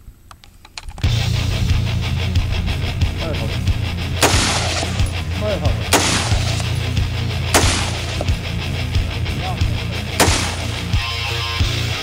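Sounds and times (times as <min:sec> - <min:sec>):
music with drum beat: 0:01.1 - 0:12.0
rifle shots: 0:04.2 - 0:08.7, 0:10.0 - 0:11.2.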